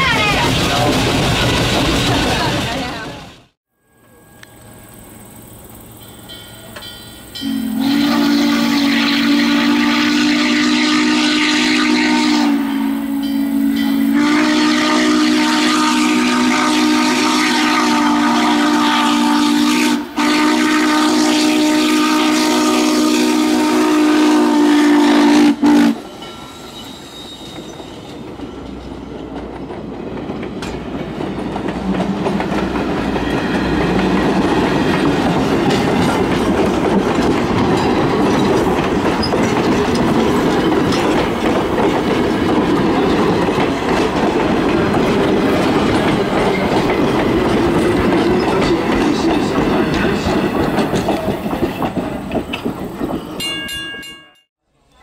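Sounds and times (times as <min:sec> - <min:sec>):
train rumble and wheel clatter: 0:00.0 - 0:55.0
steam locomotive chime whistle: 0:03.7 - 0:28.6.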